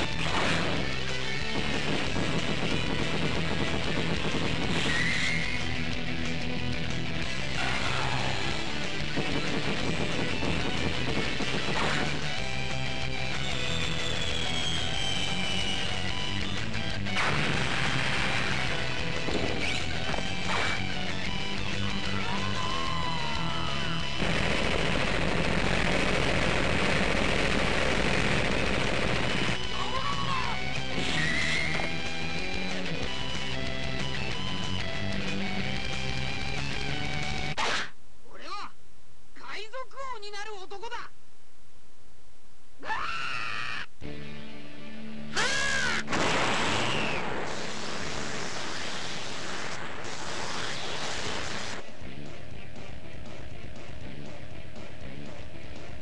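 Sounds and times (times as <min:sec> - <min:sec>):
background music: 0:00.0 - 0:27.0, 0:27.6 - 0:37.6, 0:44.0 - 0:46.3, 0:51.7 - 0:56.0
cartoon explosion and impact effects: 0:00.1 - 0:00.8, 0:04.2 - 0:05.6, 0:11.4 - 0:12.2, 0:17.1 - 0:20.8, 0:24.1 - 0:29.6, 0:45.4 - 0:51.8
whistling tone gliding up and down: 0:13.8 - 0:15.3
steady rushing hiss: 0:47.2 - 0:52.0.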